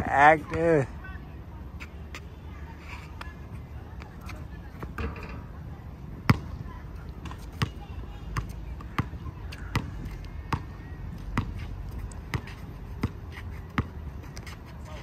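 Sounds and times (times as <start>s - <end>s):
basketball bouncing on hard court: 6.3s - 6.6s, 12.3s - 13.2s.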